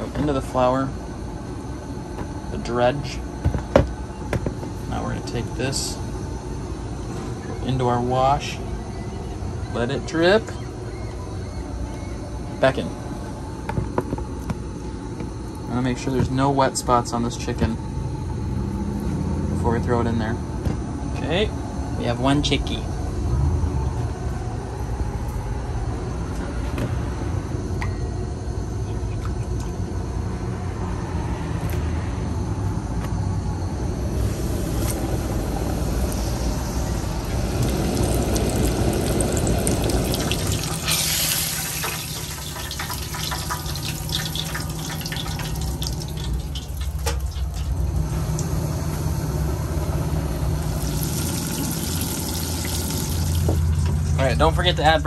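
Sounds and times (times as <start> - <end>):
low steady hum: 0.0 - 55.0
crackling and popping oil: 34.7 - 54.2
chicken deep-frying in oil: 35.9 - 48.7, 50.4 - 53.8.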